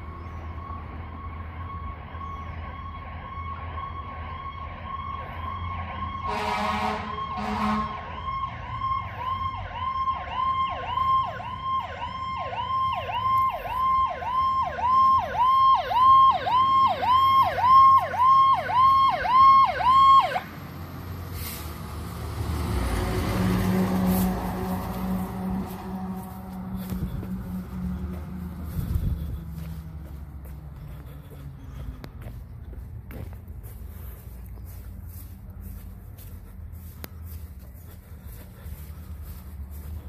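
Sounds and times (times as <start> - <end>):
fire truck siren yelping: 0.5 - 30.1
truck engine running: 11.4 - 40.0.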